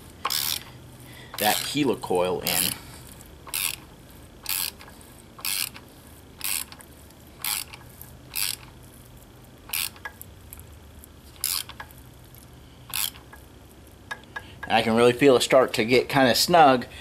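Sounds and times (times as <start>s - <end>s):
ratchet wrench clicking: 0.2s - 0.7s, 1.3s - 1.8s, 2.4s - 8.9s, 9.6s - 10.6s, 11.4s - 12.0s, 12.9s - 13.4s.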